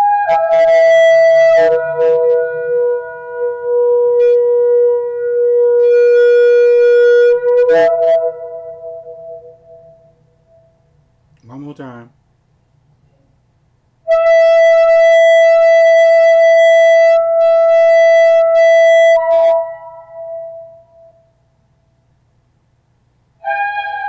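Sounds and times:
shofar blast: 0:00.0 - 0:10.1, 0:14.1 - 0:21.2, 0:23.4 - 0:24.0.

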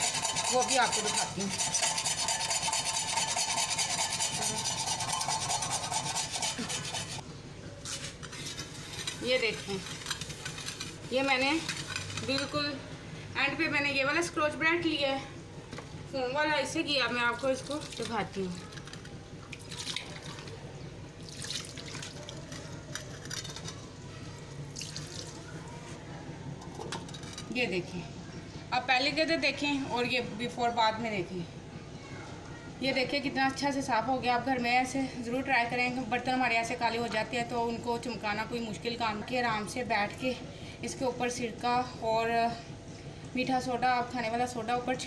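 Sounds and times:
knife scraping metal pan: 0:00.0 - 0:07.2, 0:07.8 - 0:12.6
wet scrubbing with a scourer: 0:00.0 - 0:07.2, 0:07.8 - 0:12.6.

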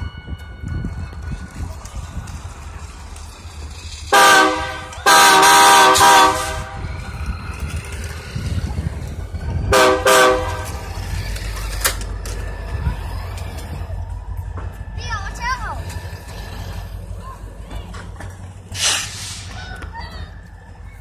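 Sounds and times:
low steady rumble: 0:00.6 - 0:21.0
train air horn blasts: 0:04.1 - 0:06.8, 0:09.7 - 0:10.8.

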